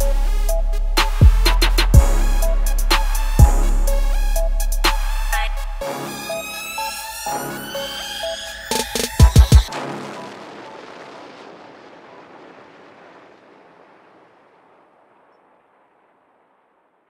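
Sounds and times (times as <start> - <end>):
rap beat hit with noisy wash: 0.0 - 10.4.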